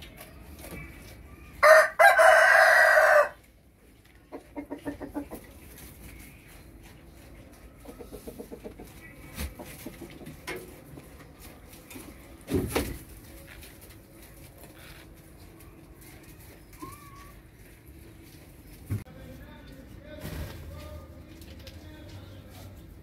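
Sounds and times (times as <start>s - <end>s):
rooster crowing: 1.6s - 3.4s.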